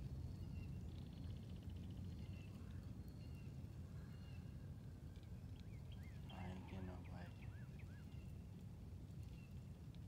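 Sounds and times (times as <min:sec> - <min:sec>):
birds singing: 0:05.7 - 0:08.3.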